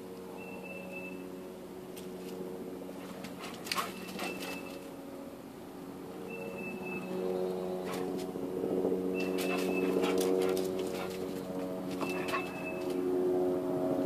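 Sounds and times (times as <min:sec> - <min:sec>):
bumblebee buzzing: 0:06.5 - 0:13.2.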